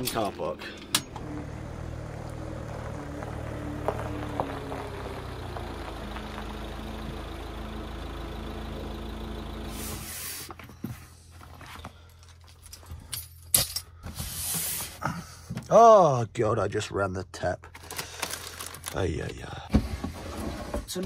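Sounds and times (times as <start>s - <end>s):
van diesel engine running: 0.0s - 13.2s.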